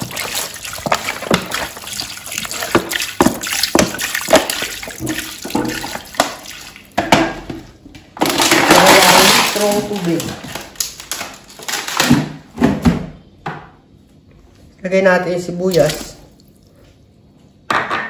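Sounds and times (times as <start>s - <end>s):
water glugging from bottle: 0.0s - 7.0s
water splashing into metal pot: 0.0s - 7.4s
plastic bottle crackling: 8.2s - 12.4s.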